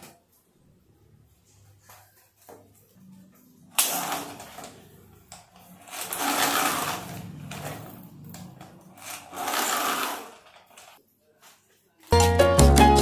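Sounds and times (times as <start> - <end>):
toy motor and gears whirring: 5.6 - 11.0.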